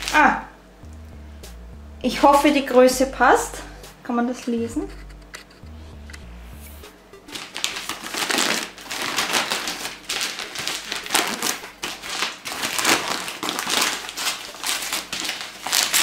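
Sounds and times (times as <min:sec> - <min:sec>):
wrapping paper crinkling: 0:00.0 - 0:00.2, 0:07.3 - 0:16.0.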